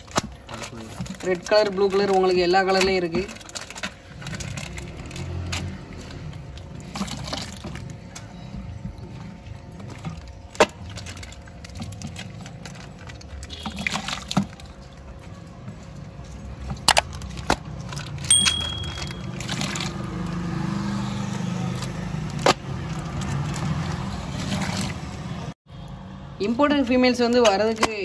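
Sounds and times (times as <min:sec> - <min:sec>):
plastic crinkling: 0:00.0 - 0:08.4.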